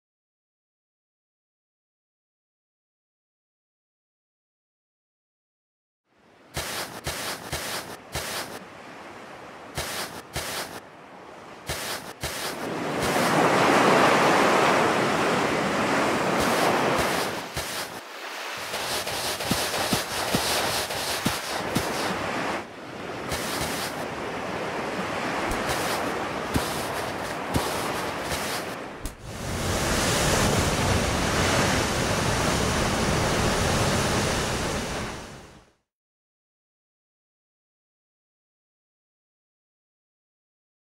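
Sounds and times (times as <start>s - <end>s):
ocean waves rushing and washing: 6.1s - 35.8s.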